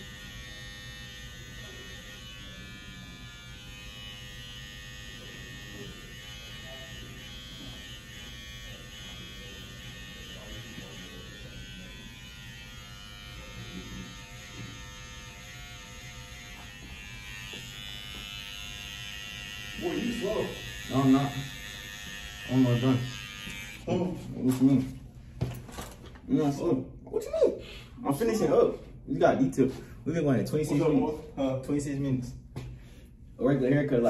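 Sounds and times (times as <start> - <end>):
electric hair clippers buzzing: 0.0 - 24.0.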